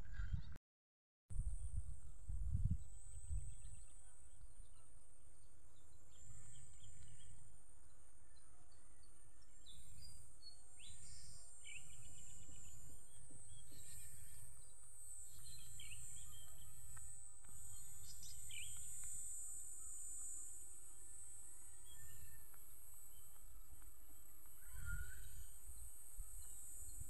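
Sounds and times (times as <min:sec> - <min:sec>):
high-pitched insect buzz: 0:09.6 - 0:27.0.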